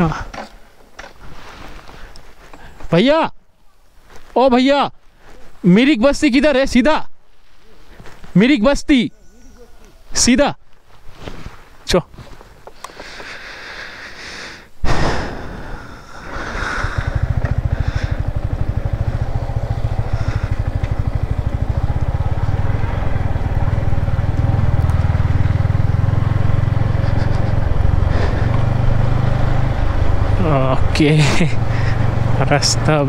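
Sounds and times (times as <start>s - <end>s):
loud sudden burst of noise: 14.8s - 17.3s
motorcycle engine pulling away: 15.6s - 33.0s.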